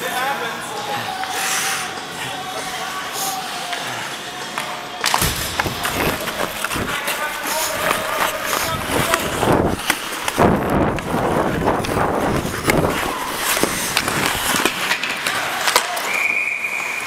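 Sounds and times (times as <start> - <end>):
skates scraping on ice: 1.1 - 17.0
stick clacking on puck: 4.5 - 11.1, 11.8 - 16.1.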